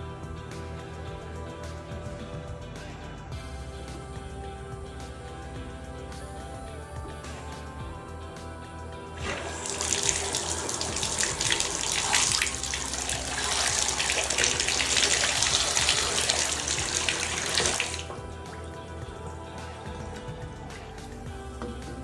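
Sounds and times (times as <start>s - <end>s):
water running into bathtub: 9.2s - 22.0s.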